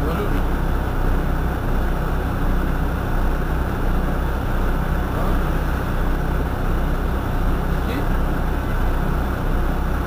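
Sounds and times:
bus engine idling: 0.0s - 10.0s.

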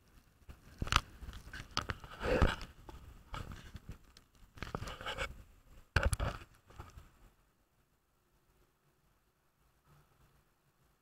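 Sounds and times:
camera handling rustling and knocks: 5.9s - 7.0s.

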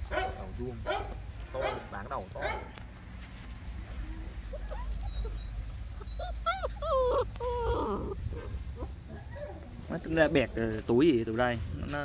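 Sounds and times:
puppies whining and yelping: 4.0s - 10.6s.

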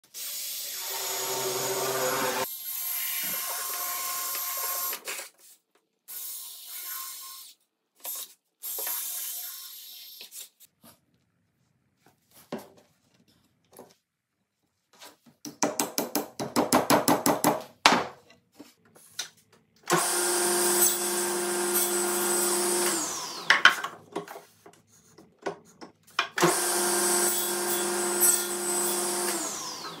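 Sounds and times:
table saw running: 0.6s - 2.5s, 19.9s - 23.6s, 26.4s - 30.0s.

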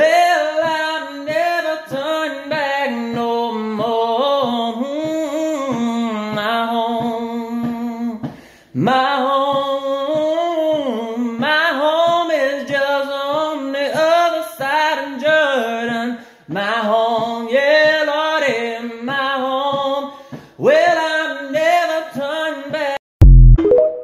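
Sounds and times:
man singing hymn unaccompanied: 0.0s - 23.0s
man breathing: 8.2s - 8.8s, 16.2s - 16.5s, 20.1s - 20.6s.

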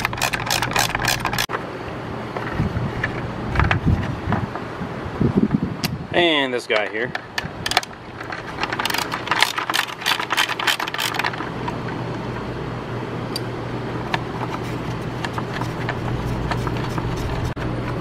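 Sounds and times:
low steady hum: 0.0s - 18.0s
socket ratchet clicking: 8.6s - 11.4s.

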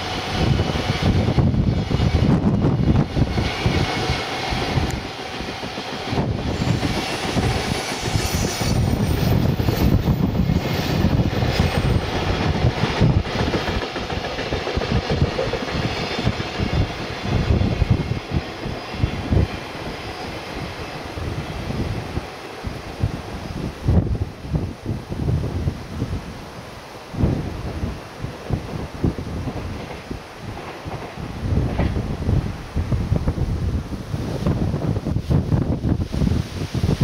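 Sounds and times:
freight train wheels rumbling: 0.0s - 37.0s.

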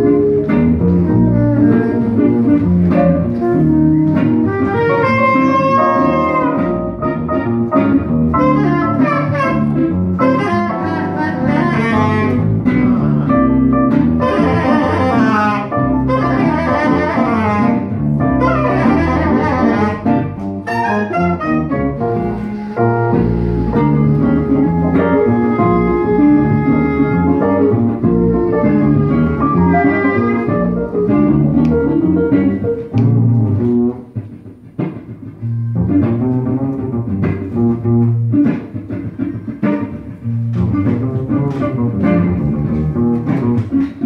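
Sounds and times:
electric keyboard: 0.0s - 34.0s
saxophone lead: 0.0s - 34.1s
guitar: 0.0s - 44.0s
upright double bass: 0.0s - 44.0s.

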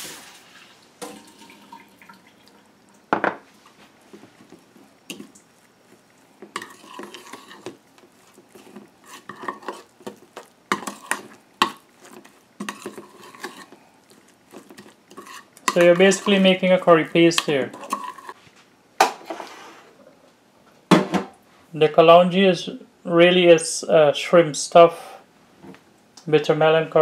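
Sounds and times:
metal spoon stirring paste in bowl: 4.5s - 18.4s.

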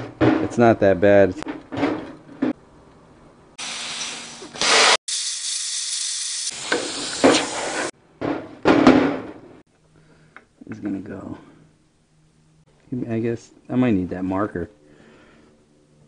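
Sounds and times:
plasma cutter hissing: 3.6s - 7.9s.

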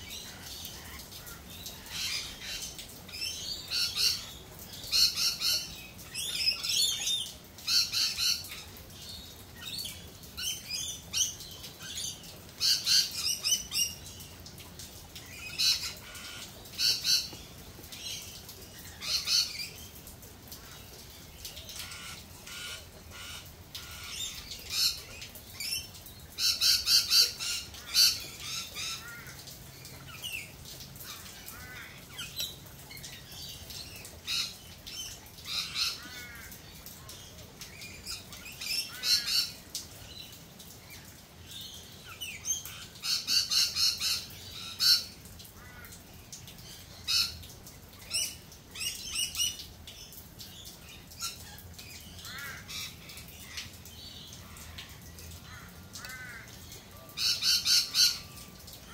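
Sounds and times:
birds calling rapidly: 0.0s - 58.9s.

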